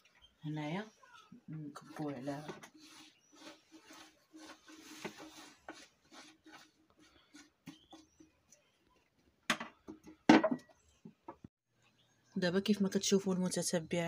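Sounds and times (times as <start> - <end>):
utensils scraping pot: 1.3 - 8.6.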